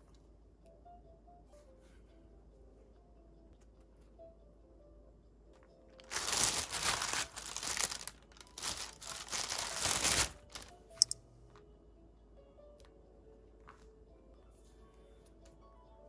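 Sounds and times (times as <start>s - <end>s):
plastic bag crinkling: 6.0s - 11.2s.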